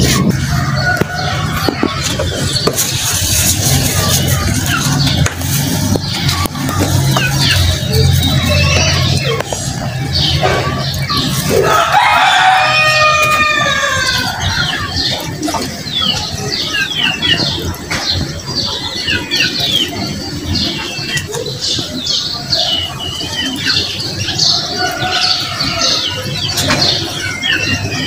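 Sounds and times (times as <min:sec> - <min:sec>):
small birds chirping: 0:00.0 - 0:28.0
rooster crowing: 0:11.5 - 0:14.6.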